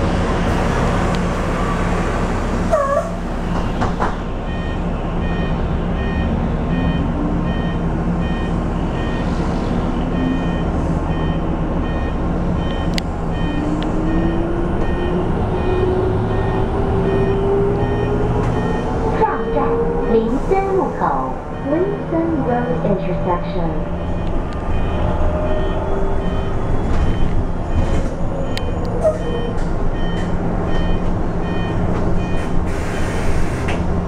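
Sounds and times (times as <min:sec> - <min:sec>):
bus rumble and road noise: 0:00.0 - 0:34.0
repeating electronic beep: 0:23.9 - 0:32.5.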